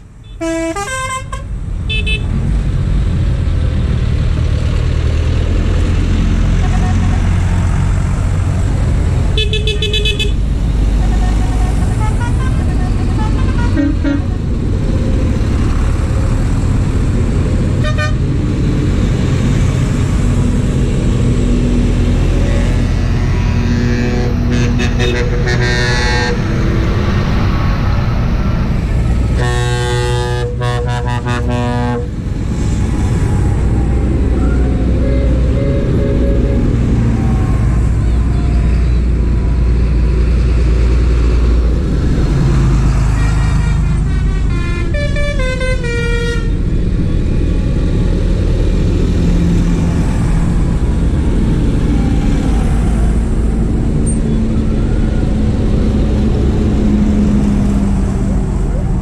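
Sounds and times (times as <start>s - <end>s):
tractor engines rumbling past: 0.0s - 59.0s
horns tooting: 0.2s - 2.3s, 6.6s - 7.4s, 9.4s - 14.6s, 22.3s - 26.5s, 29.3s - 32.2s, 34.4s - 38.7s, 43.1s - 46.6s.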